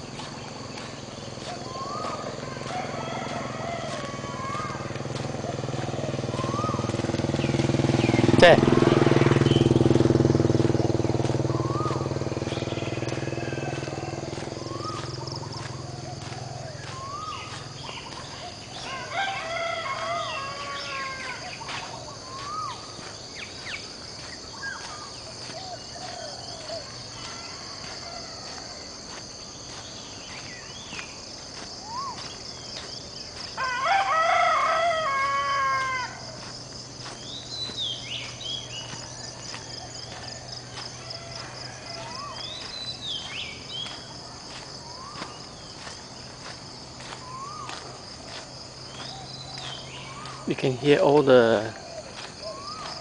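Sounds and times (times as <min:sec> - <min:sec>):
high insect drone: 0:00.0 - 0:53.0
small birds chirping: 0:00.0 - 0:53.0
rooster crowing: 0:01.6 - 0:07.0, 0:10.9 - 0:23.0, 0:25.8 - 0:29.1, 0:33.5 - 0:37.0, 0:37.6 - 0:44.4.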